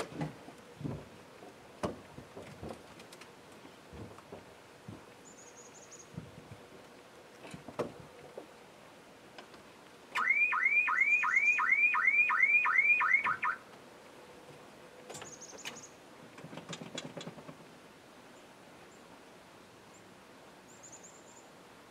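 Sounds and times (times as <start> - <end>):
car alarm whooping: 10.2 - 13.6.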